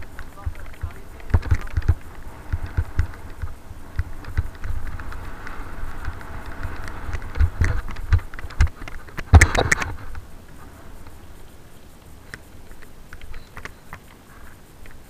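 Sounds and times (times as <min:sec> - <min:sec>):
bike knocks and rattles: 0:00.0 - 0:10.3
bike tyres crunching on gravel: 0:00.0 - 0:15.0.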